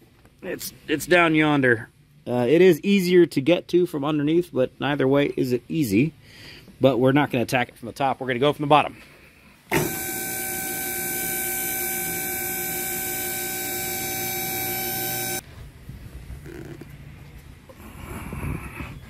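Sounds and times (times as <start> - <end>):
hydraulic pump motor humming: 9.7 - 15.4.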